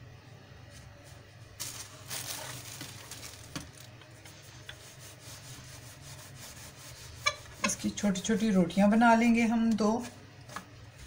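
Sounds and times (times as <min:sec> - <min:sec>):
dough rolled with rolling pin: 0:02.4 - 0:08.2.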